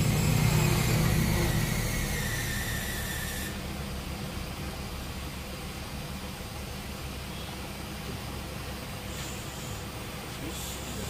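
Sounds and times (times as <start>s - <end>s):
low mechanical rumble: 0.0s - 11.0s
compressed air hissing through hose: 9.0s - 11.0s.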